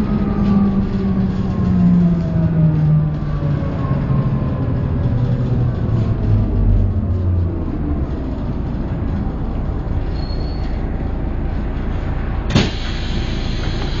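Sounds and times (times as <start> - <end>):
bus diesel engine running: 0.0 - 14.0
pneumatic doors hissing: 12.5 - 14.0.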